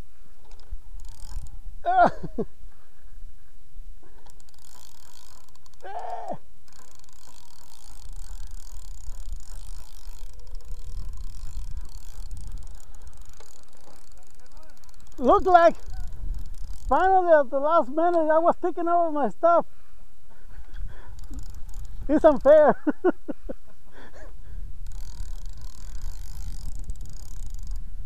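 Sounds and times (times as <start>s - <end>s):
fishing reel gears whirring: 0.2s - 2.5s, 4.0s - 19.4s, 20.4s - 23.1s, 23.9s - 28.0s
short falling cries: 5.8s - 6.4s.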